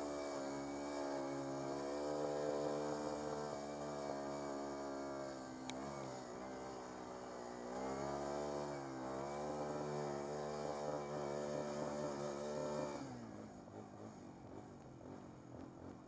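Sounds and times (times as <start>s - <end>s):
atv engine running: 0.0s - 16.0s.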